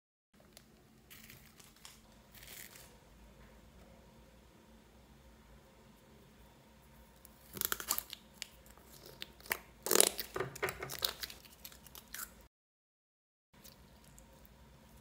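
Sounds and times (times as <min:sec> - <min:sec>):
slime crackling and popping: 0:07.3 - 0:12.0.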